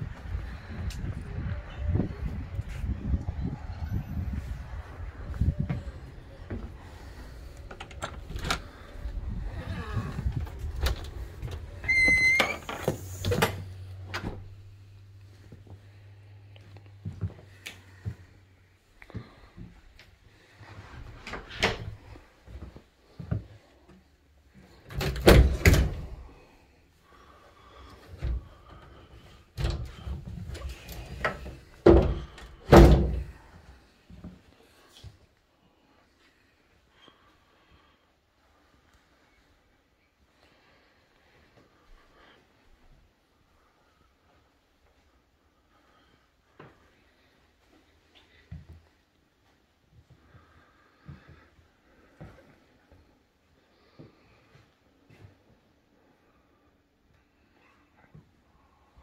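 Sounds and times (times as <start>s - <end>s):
door high-pitched squeal: 10.8s - 13.6s
closet door knocks and thumps: 31.8s - 33.2s.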